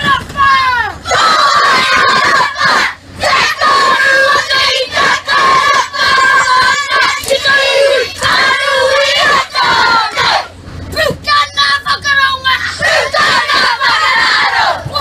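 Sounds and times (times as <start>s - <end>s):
children chanting in unison: 12.7s - 15.0s.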